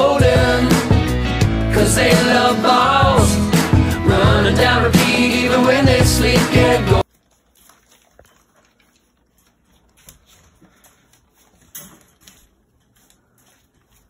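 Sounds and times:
puppies rustling on newspaper: 7.0 - 14.0.

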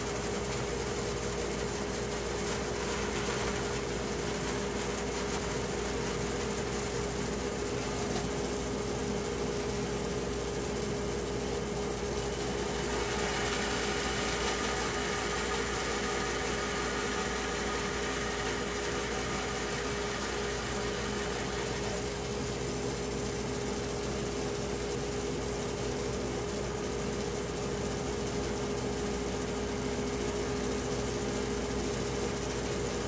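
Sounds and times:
woodworking machine humming: 2.2 - 9.2, 12.4 - 22.8.

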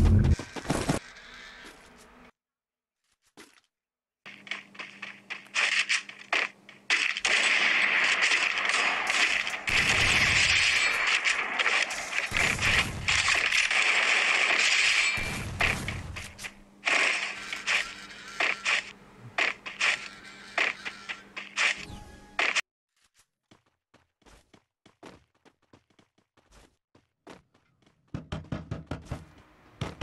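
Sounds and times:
rapid gunshots: 4.3 - 21.8.

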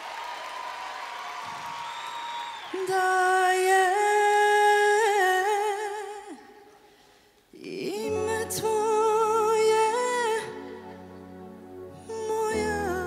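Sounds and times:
woman singing held notes with vibrato: 7.6 - 13.0.

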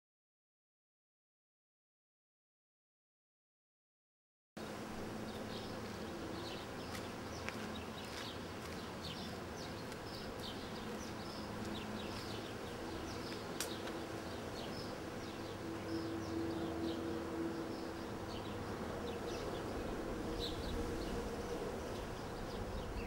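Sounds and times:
low buzzing hum: 4.6 - 23.0
small birds chirping: 5.2 - 23.0.

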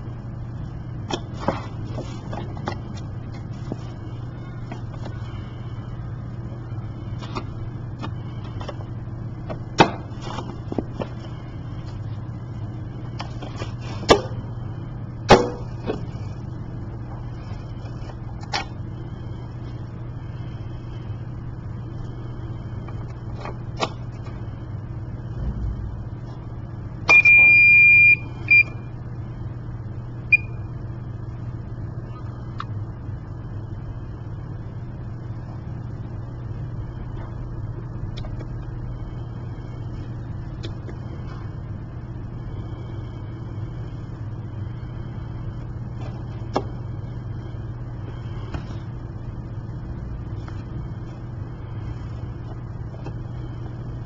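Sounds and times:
steady low hum: 0.0 - 54.0
pump beeps: 27.1 - 28.9, 30.3 - 30.7.

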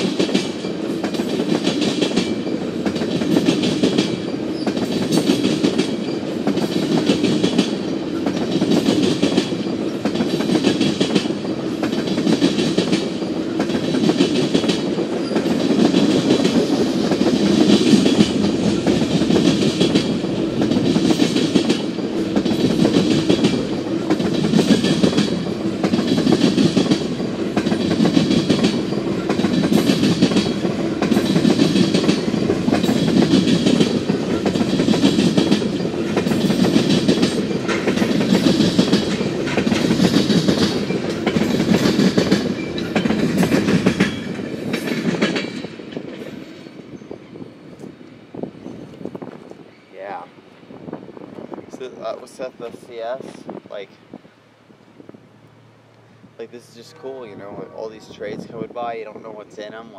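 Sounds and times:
train wheels clacking over rail joints: 0.0 - 46.8
freight train rumble: 0.0 - 59.9.

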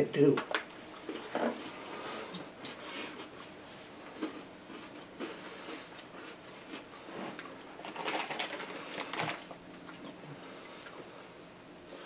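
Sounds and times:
chewing crunchy cookies: 0.5 - 11.3
plastic snack bag crinkling: 7.4 - 9.6.

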